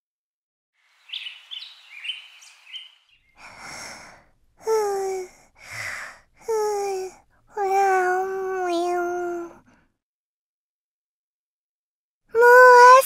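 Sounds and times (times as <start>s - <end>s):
cartoon sleep breathing: 3.4s - 7.2s.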